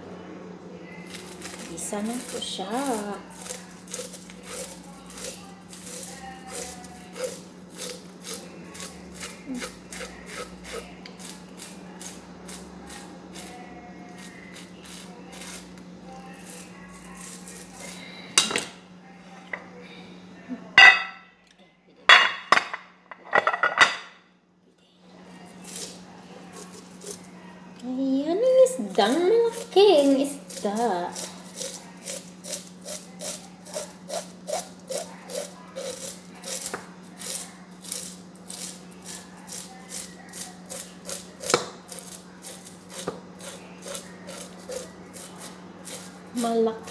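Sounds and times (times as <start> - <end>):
faint steady hum: 0.0 - 46.9
knife scraping fish scales: 1.0 - 13.6, 14.2 - 15.8, 16.4 - 18.0, 25.4 - 27.4, 28.8 - 46.9.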